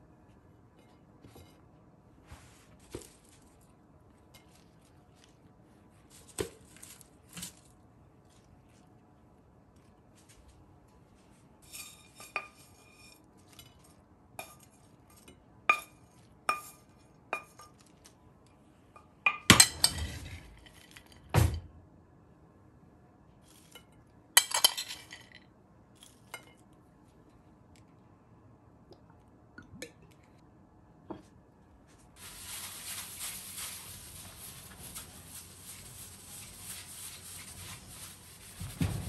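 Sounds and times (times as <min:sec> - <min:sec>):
tableware clattering: 0:19.3 - 0:21.5, 0:24.4 - 0:25.4.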